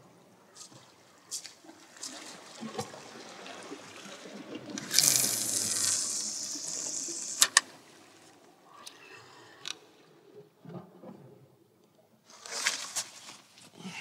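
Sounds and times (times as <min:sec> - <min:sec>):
water lapping against rocks: 0:00.7 - 0:11.4.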